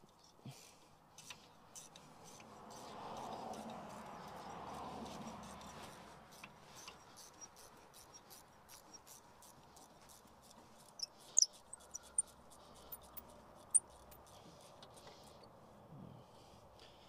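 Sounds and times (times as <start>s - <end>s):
hand ratchet clicking: 6.3s - 15.1s.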